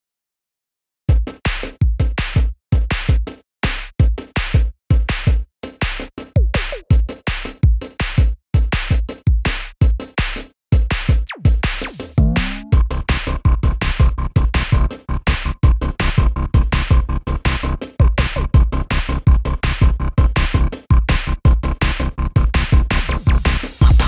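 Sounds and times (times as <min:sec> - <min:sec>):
electronic music with drum-machine beat: 0:04.1 - 0:10.2, 0:11.0 - 0:13.0, 0:15.8 - 0:24.0
rising synth glides: 0:12.2 - 0:12.8.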